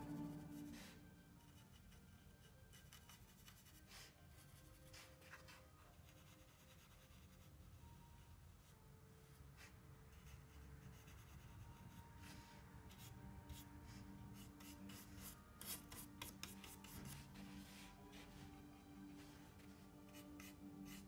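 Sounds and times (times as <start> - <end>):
paintbrush brushing on palette: 9.3 - 21.0.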